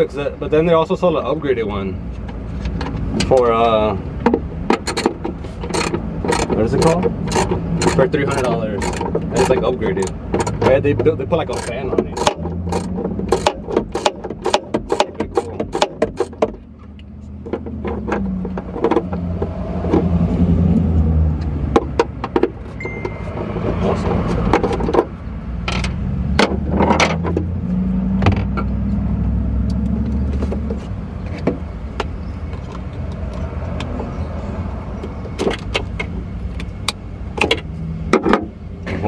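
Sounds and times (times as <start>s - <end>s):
clicks and knocks of tools: 4.3s - 10.7s.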